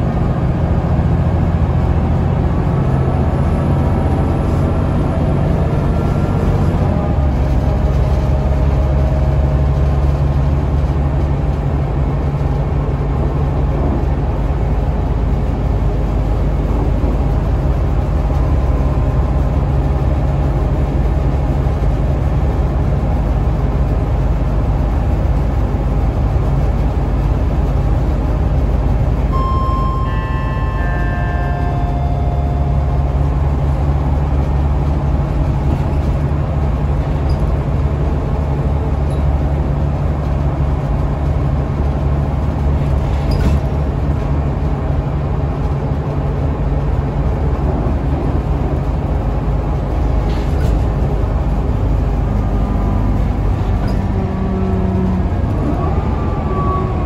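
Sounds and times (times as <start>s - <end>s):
bus engine rumbling: 0.0s - 57.0s
road noise: 0.0s - 57.0s
brief high tones: 29.3s - 33.6s.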